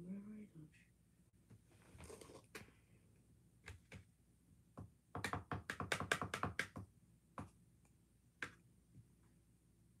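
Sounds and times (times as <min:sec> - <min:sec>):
tapping on hard objects: 0:04.8 - 0:07.5.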